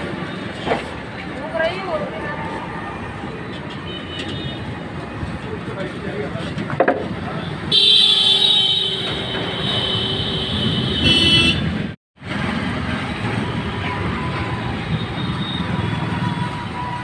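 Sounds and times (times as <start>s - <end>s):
road traffic: 0.0s - 17.0s
vehicle horn: 7.7s - 11.7s.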